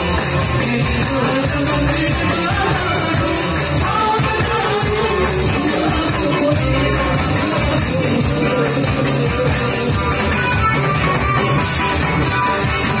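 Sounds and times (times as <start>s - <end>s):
woman and men singing: 0.0s - 11.6s.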